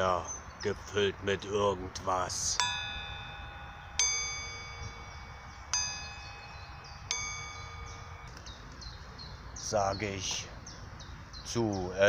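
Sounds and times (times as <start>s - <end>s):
ringing metal chime: 2.4s - 9.5s.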